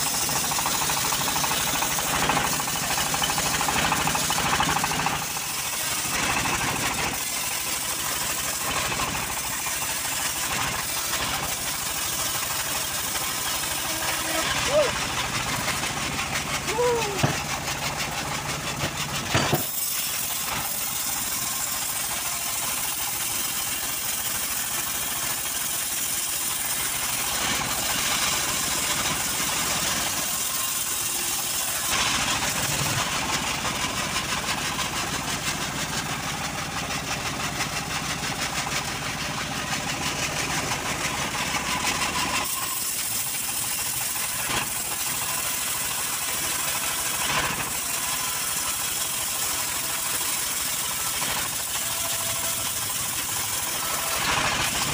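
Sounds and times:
band sawmill cutting log: 0.0 - 54.9.

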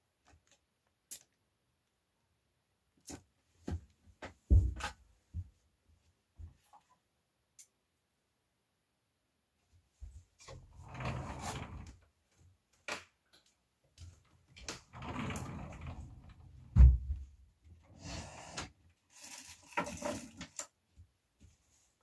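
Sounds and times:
plastic rustling and scraping: 19.1 - 20.7.

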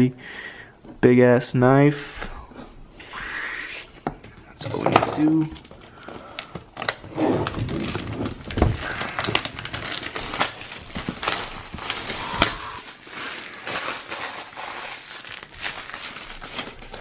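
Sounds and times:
plastic wrap crinkling: 5.3 - 17.0.

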